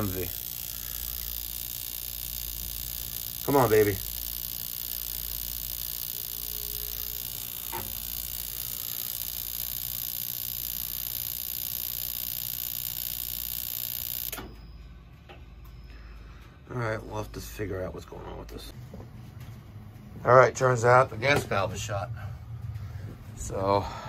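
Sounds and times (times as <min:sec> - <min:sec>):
boiler humming: 0:00.0 - 0:14.4
boiler ignition click: 0:00.0 - 0:14.4.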